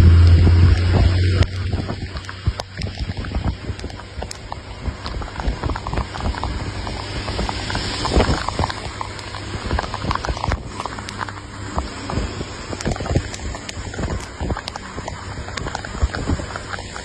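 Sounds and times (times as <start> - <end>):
low engine hum: 0.0 - 17.0
rain pattering on windshield: 0.0 - 17.0
tyre hiss on wet road: 6.0 - 17.0.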